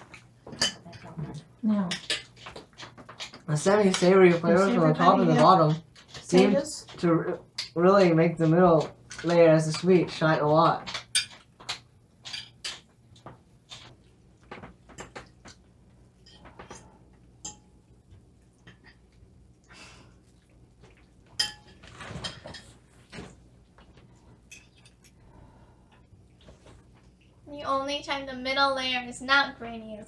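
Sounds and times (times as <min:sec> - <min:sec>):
forks scraping on plates: 0:21.4 - 0:23.3.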